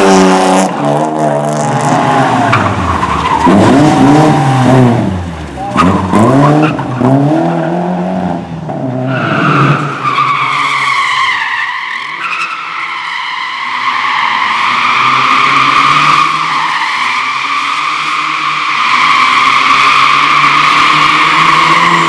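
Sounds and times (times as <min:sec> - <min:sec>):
car engine revving: 0:00.0 - 0:09.8, 0:17.2 - 0:22.0.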